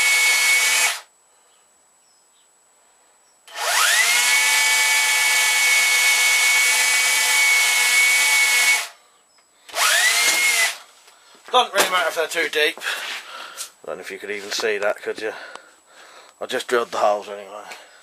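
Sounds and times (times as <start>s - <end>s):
electric drill boring into wood: 0.0s - 1.1s, 3.5s - 9.0s, 9.7s - 10.8s.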